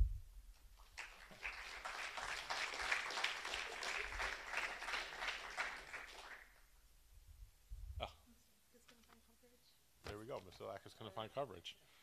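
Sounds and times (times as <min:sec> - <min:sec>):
audience applauding: 0:00.8 - 0:06.6.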